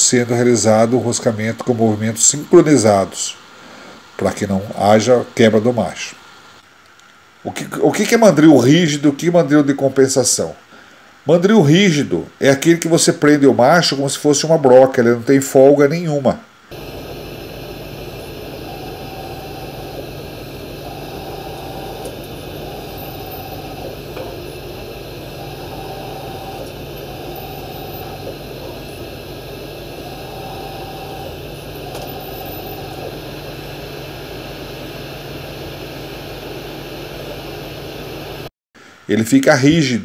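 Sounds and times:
machine hum: 16.7s - 38.5s
spindle whine: 16.7s - 38.5s.

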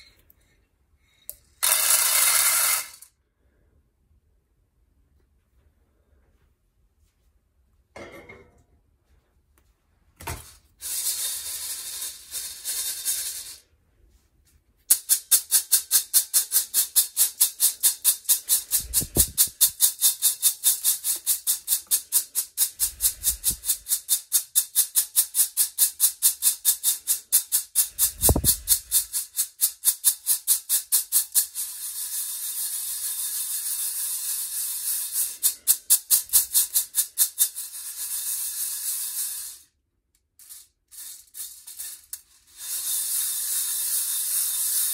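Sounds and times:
coffee beans rattling in colander: 1.6s - 3.1s, 10.7s - 13.7s, 14.9s - 39.7s, 40.4s - 44.9s.

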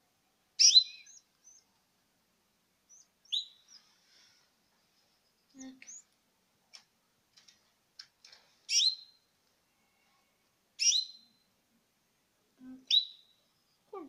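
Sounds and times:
loud high nestling chirps: 0.6s - 1.6s, 2.9s - 4.0s, 8.7s - 9.2s, 10.8s - 11.4s.

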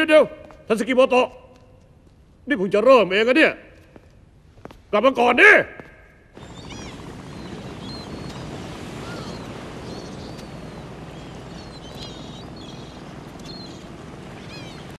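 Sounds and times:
seaside background noise: 0.0s - 15.0s
small birds chirping: 6.1s - 15.0s.

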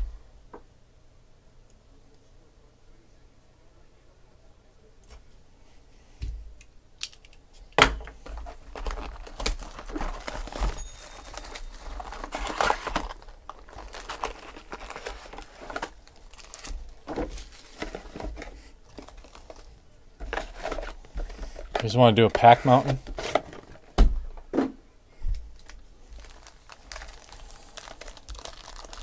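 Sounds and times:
foil card packs crinkling: 8.2s - 24.0s, 25.5s - 29.0s.

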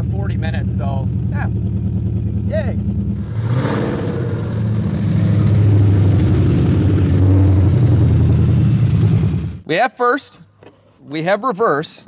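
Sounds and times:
car engine rumbling at low revs: 0.0s - 9.6s.

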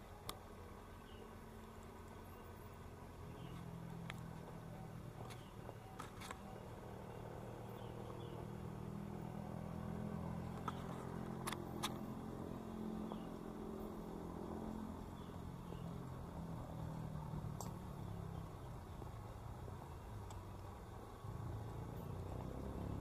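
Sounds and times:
low engine hum: 0.0s - 23.0s.

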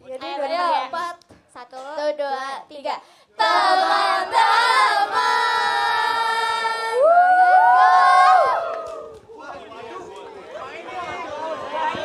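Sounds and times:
women singing a cappella: 3.4s - 7.1s.

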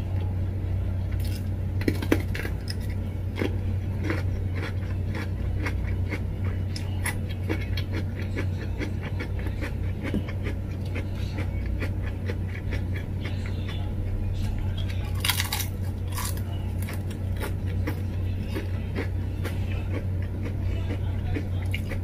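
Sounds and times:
low hum: 0.0s - 22.0s
crisp chip crunches: 1.1s - 6.2s, 15.0s - 20.0s
wet mouth clicks and chewing: 20.9s - 22.0s.

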